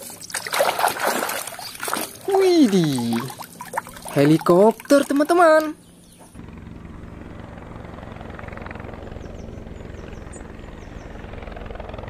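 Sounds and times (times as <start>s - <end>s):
helicopter rotor chopping: 0.0s - 12.0s.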